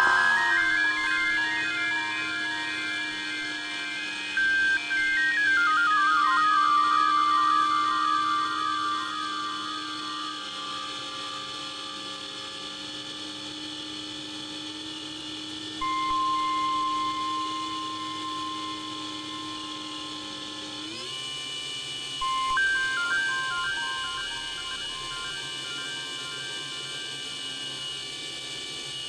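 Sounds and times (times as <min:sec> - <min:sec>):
electronic music with held tones: 0:00.0 - 0:12.9, 0:15.7 - 0:28.8.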